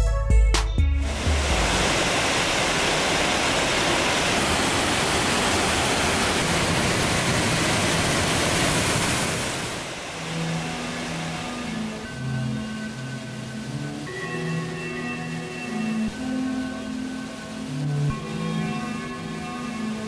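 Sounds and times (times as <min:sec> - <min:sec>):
music track: 0:00.0 - 0:02.2, 0:10.1 - 0:20.0
rushing water: 0:01.0 - 0:20.0.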